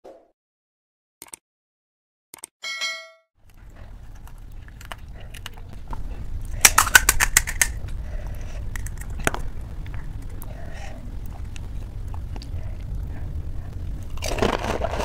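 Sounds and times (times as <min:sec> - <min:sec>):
sharp cracks: 0:06.5 - 0:10.5
crisp shells crackling: 0:06.5 - 0:12.6, 0:13.9 - 0:15.0.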